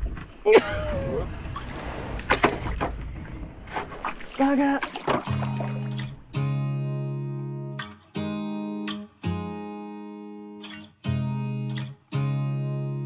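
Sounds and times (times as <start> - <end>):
acoustic guitar strumming chords: 5.3 - 13.0.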